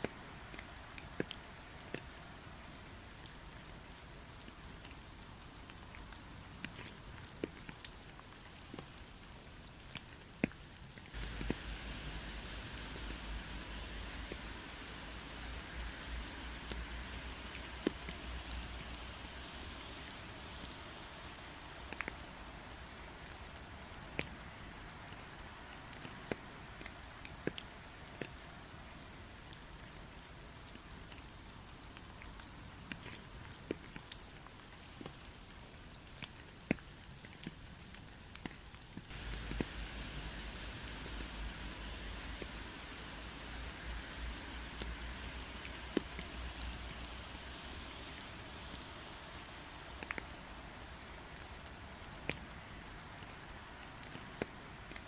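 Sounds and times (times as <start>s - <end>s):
raindrops ticking on a surface: 0.0s - 55.0s
rain hissing: 11.1s - 32.6s, 39.1s - 55.0s.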